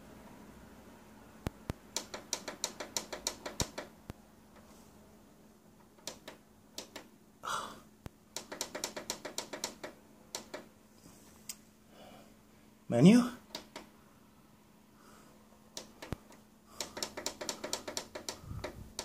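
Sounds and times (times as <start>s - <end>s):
tv buttons clicking: 1.4s - 3.9s, 6.0s - 7.1s, 8.4s - 10.7s, 13.5s - 13.9s, 15.7s - 19.0s.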